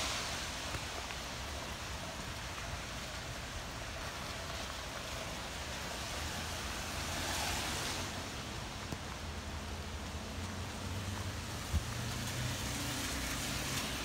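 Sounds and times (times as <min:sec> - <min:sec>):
hurricane wind: 0:00.0 - 0:14.0
rain: 0:00.0 - 0:14.0.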